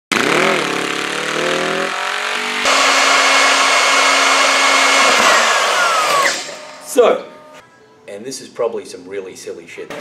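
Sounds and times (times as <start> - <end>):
motorcycle engine revving: 0.1 - 6.5
power tool whining: 0.5 - 7.6.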